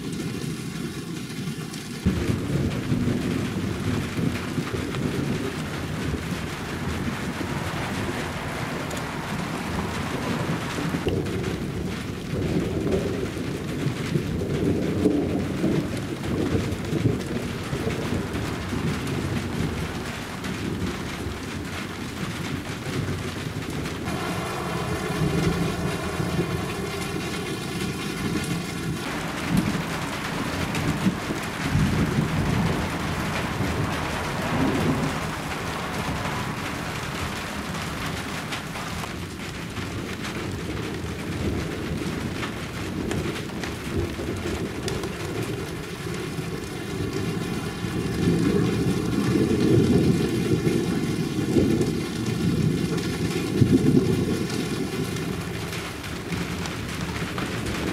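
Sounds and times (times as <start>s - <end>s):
rolling thunder: 2.0s - 57.9s
steady hiss: 24.0s - 39.2s.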